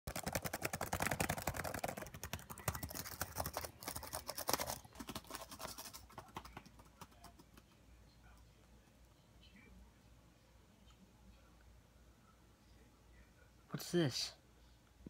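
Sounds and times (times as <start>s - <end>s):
fast typing on keyboard: 0.1s - 7.8s.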